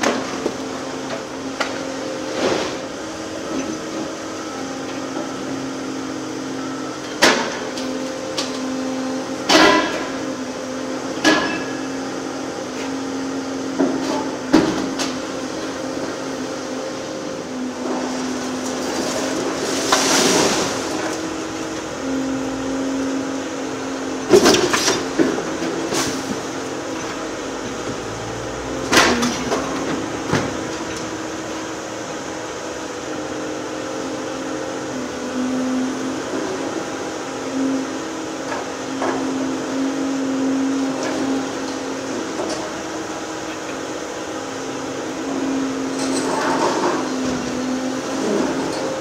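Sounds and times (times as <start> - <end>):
excavator engine and hydraulic hum: 0.0 - 49.0
debris breaking and falling: 18.7 - 21.3.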